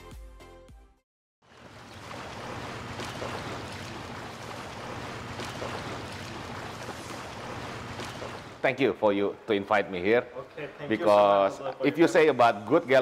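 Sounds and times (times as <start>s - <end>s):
sea waves washing on beach: 1.5s - 8.6s.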